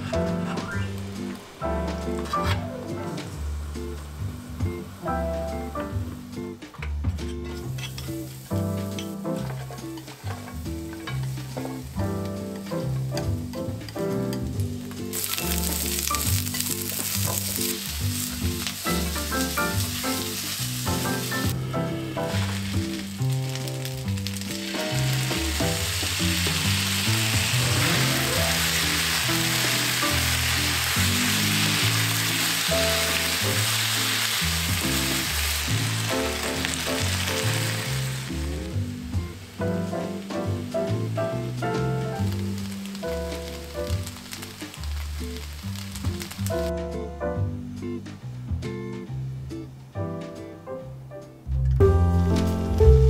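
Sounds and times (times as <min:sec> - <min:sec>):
background music: 0:00.0 - 0:53.0
noodles sizzling in a frying pan: 0:07.7 - 0:12.0, 0:12.6 - 0:46.7.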